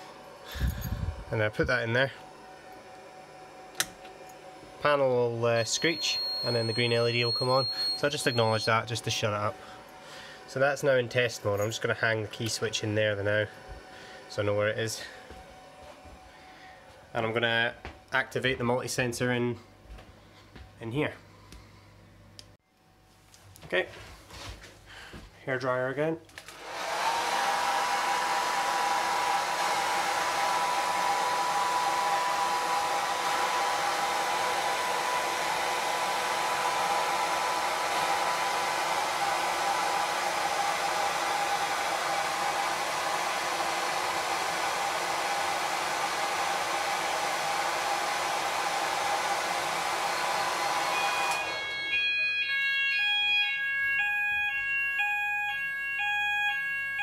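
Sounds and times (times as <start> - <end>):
hair dryer blowing: 0.0 - 17.4, 26.4 - 55.7
fire alarm alternating tones: 5.6 - 9.2, 50.9 - 57.0.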